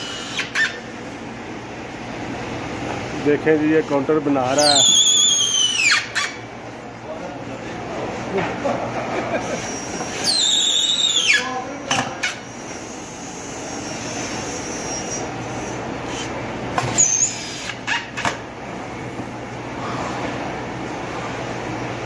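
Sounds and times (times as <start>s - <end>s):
cordless drill boring: 0.0s - 0.7s, 16.9s - 18.0s
low workshop hum: 0.0s - 22.0s.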